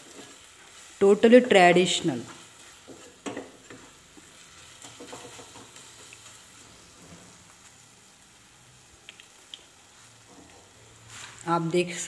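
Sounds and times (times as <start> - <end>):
wooden spatula scraping: 0.0 - 1.0, 2.1 - 7.8, 10.0 - 11.5
food sizzling in a pan: 0.0 - 12.0.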